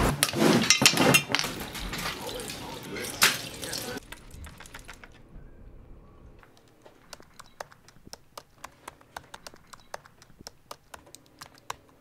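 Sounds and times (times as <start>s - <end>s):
laptop keyboard typing: 6.4s - 12.0s.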